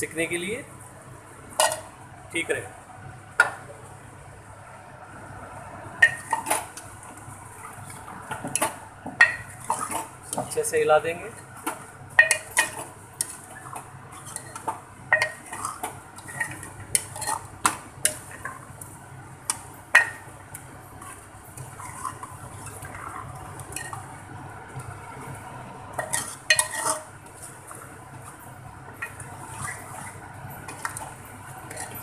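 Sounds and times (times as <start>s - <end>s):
metal spoon scraping a pot: 12.2s - 17.5s, 21.6s - 24.0s, 26.0s - 27.1s, 29.0s - 32.0s.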